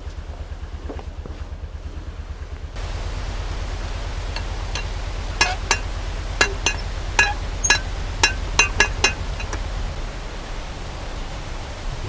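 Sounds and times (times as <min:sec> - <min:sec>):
steady low rush: 0:00.0 - 0:12.0
pawl clinking over ratchet: 0:04.4 - 0:09.8.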